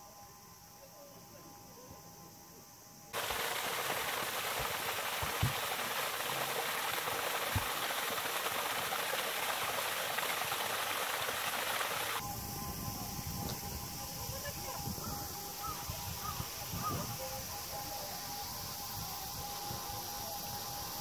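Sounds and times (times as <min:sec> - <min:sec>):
waterfall splashing over rocks: 0:03.2 - 0:12.2.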